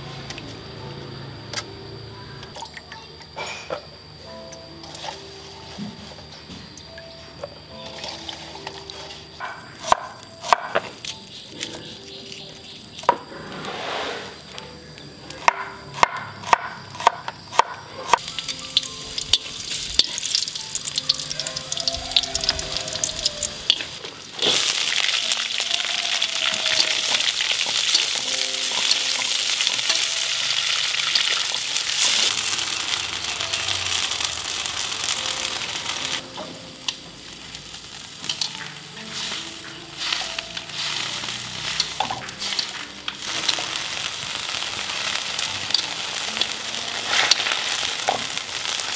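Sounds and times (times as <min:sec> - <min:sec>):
food frying in hot oil: 0:18.2 - 0:48.9.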